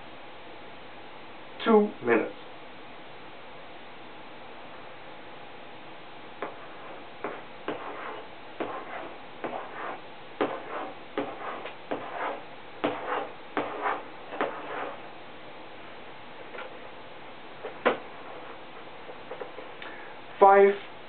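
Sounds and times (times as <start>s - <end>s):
chalk tapping and scratching: 6.4s - 15.2s, 17.6s - 19.7s.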